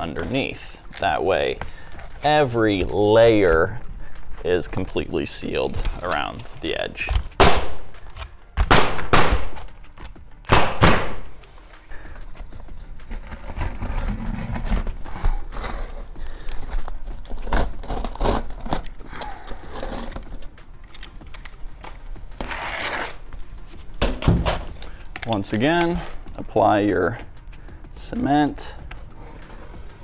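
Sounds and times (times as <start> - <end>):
pneumatic nailer firing: 7.4 - 8.0, 8.6 - 9.6, 10.5 - 11.3
knife scraping shingle: 22.4 - 23.3.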